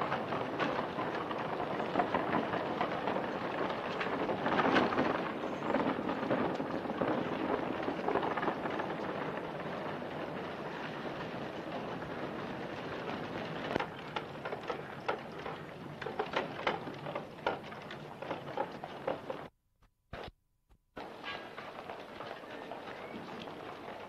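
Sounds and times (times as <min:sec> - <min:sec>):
film recording hiss and crackle: 0:00.0 - 0:20.4, 0:21.0 - 0:24.0
irregular clicks and knocks: 0:12.8 - 0:22.1.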